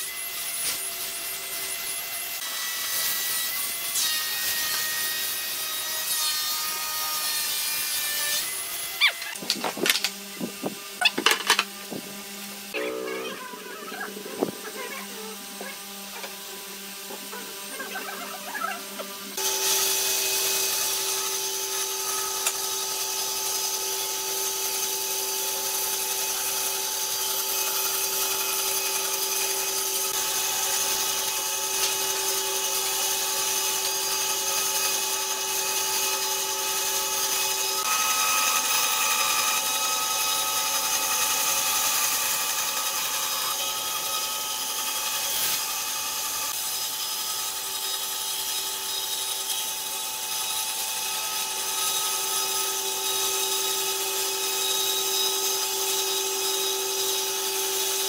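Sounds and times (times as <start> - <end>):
bandsaw motor hum: 0.0 - 58.0.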